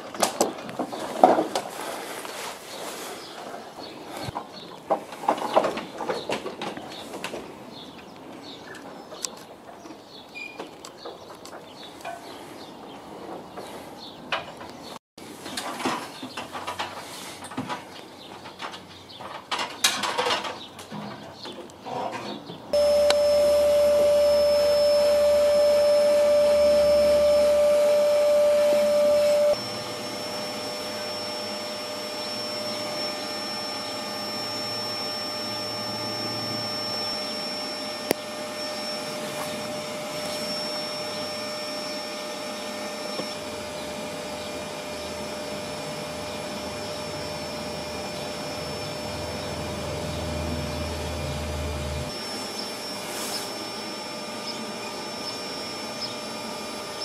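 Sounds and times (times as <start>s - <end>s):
vacuum motor whining: 22.8s - 57.0s.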